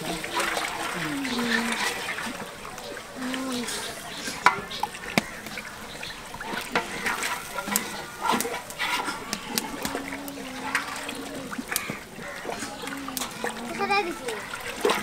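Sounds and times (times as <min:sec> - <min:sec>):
liquid sloshing in a pot: 0:03.4 - 0:15.0.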